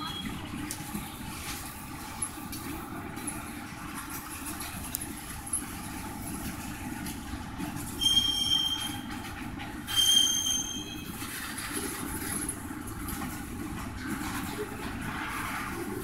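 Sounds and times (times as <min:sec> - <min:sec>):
freight train rumbling: 0:00.0 - 0:16.0
metallic wheel squeals: 0:08.0 - 0:09.2, 0:09.8 - 0:11.3.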